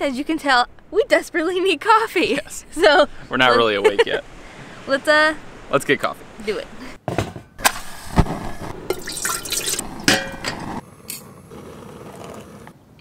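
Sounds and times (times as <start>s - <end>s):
metal pot stand on stove: 8.9s - 10.7s.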